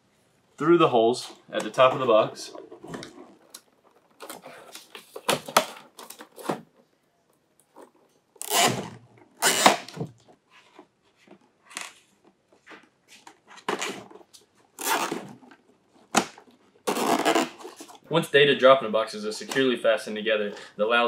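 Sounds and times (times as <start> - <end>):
zip ties rasping: 16.9 - 17.6.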